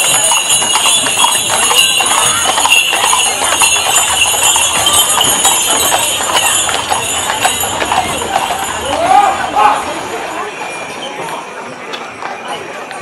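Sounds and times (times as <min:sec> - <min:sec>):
hooves clip-clopping on asphalt: 0:00.0 - 0:09.8
harness bells jingling: 0:00.0 - 0:11.5.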